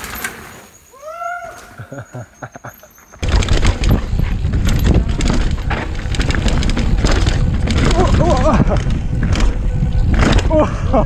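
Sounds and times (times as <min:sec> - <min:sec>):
bike knocking and rattling: 0:03.2 - 0:11.0
wind rush on microphone: 0:03.2 - 0:11.0.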